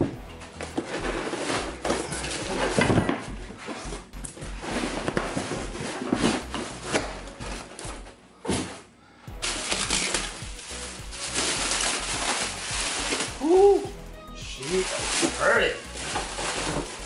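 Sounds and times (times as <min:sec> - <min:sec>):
foam scraping against cardboard: 0:00.6 - 0:07.1, 0:09.4 - 0:13.4, 0:14.6 - 0:17.0.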